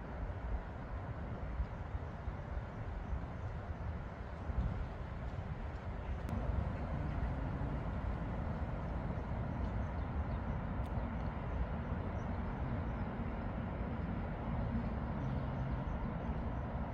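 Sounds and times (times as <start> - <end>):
low outdoor rumble: 4.1 - 16.9.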